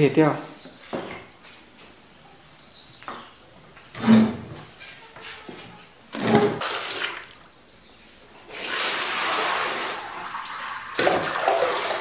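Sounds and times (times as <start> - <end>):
milk splashing as it is poured: 6.6 - 7.4, 8.5 - 12.0.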